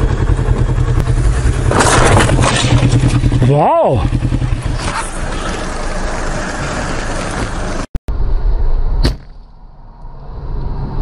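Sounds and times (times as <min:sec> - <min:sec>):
motorcycle engine: 0:00.0 - 0:07.9
car driving rumble: 0:00.0 - 0:08.5
sharp knock: 0:09.0 - 0:09.5.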